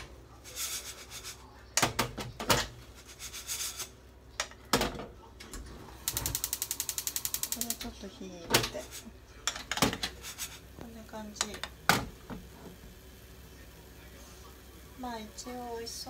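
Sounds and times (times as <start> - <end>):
wooden spatula scraping saucepan: 0.0 - 1.5, 2.6 - 4.0, 10.0 - 10.7.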